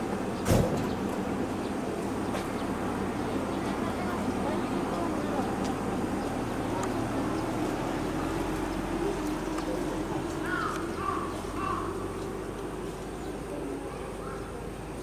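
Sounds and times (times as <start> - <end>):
low background murmur: 0.0 - 15.0
crow cawing: 10.4 - 12.2.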